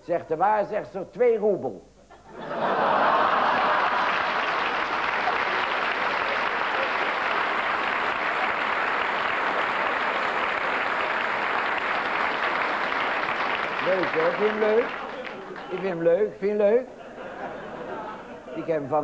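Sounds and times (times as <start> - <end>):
audience laughter: 2.1 - 7.4, 16.8 - 18.9
audience clapping: 2.8 - 16.8.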